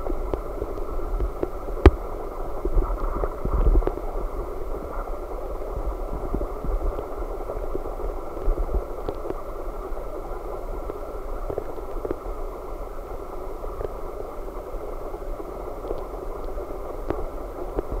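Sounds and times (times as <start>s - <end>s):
faint ticks: 0.0s - 4.1s, 6.2s - 10.1s, 10.7s - 12.3s, 15.4s - 18.0s.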